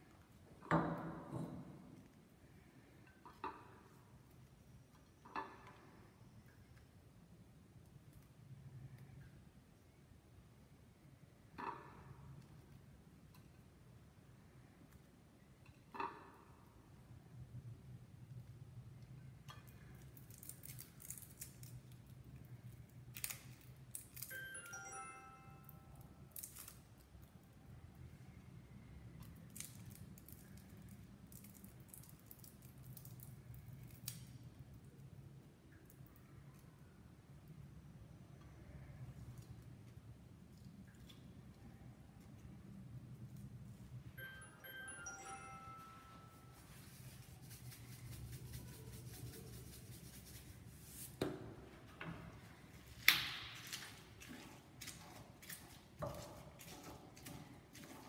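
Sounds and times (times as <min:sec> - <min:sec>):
garlic skins being peeled: 0:19.6 - 0:24.4, 0:26.3 - 0:27.8, 0:29.2 - 0:35.0, 0:52.9 - 0:58.0.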